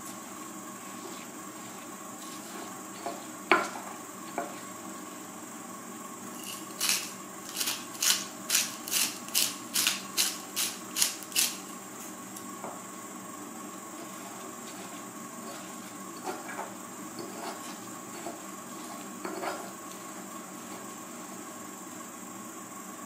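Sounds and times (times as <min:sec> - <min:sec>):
pestle grinding in stone mortar: 0:06.3 - 0:11.7, 0:14.0 - 0:20.1
salt grinder grinding: 0:06.3 - 0:11.8, 0:13.9 - 0:21.2.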